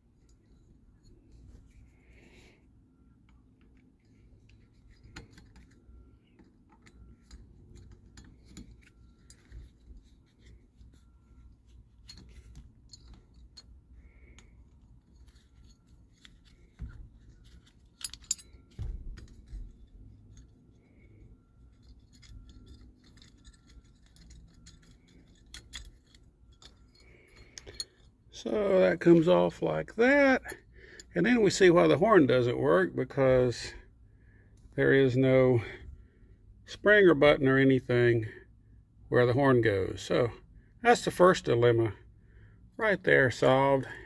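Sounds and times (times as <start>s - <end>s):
screwdriver metal clicks and scrapes: 3.2s - 28.2s.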